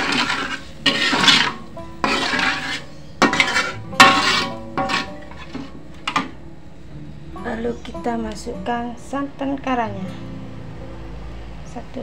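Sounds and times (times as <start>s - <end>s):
metal spatula scraping wok: 0.0s - 6.3s.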